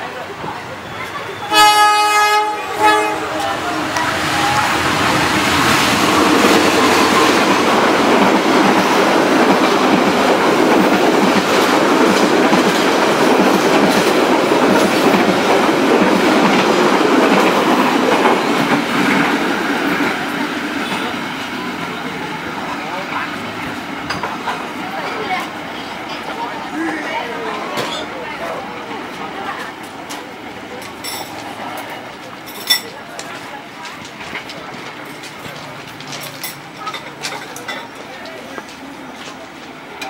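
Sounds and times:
train rumbling past: 0.0s - 40.0s
locomotive horn blast: 1.4s - 5.6s
wheels clattering over rail joints: 29.0s - 40.0s.

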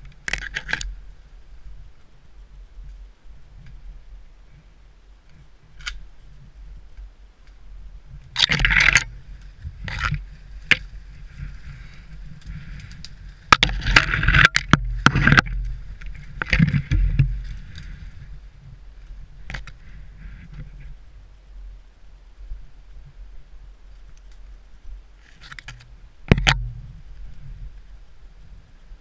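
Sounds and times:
twigs cracking: 0.0s - 1.0s, 8.3s - 20.9s
branches brushing against clothing: 0.0s - 21.8s.

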